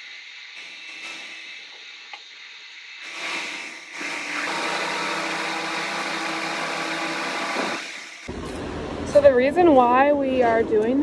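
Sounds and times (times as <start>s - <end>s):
motor-driven machine running: 0.0s - 8.4s.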